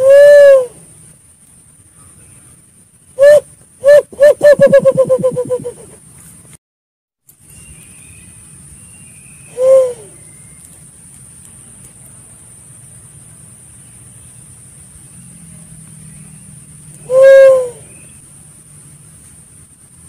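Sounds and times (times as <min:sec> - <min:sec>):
dove hooting coos: 0:00.0 - 0:00.9, 0:03.2 - 0:06.0, 0:09.5 - 0:10.3, 0:17.0 - 0:18.1.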